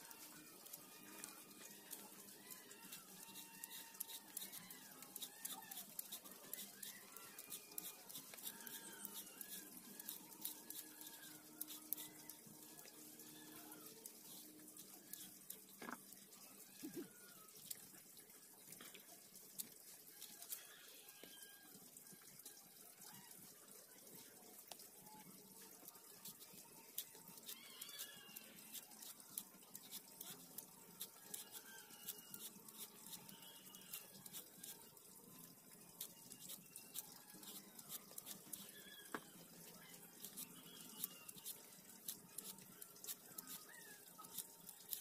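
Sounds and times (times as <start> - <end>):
peeler scraping banana skins: 0.3 - 12.2, 26.2 - 34.9, 36.0 - 39.3, 40.0 - 45.0.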